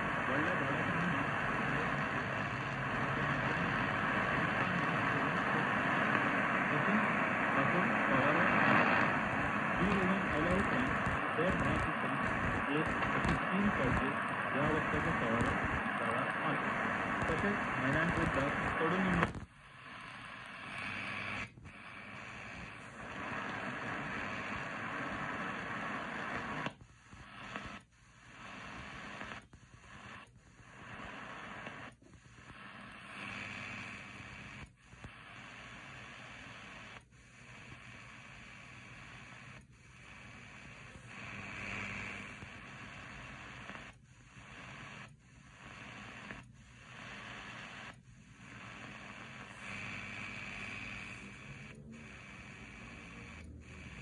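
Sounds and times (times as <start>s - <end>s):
radio static hiss: 0.0s - 54.0s.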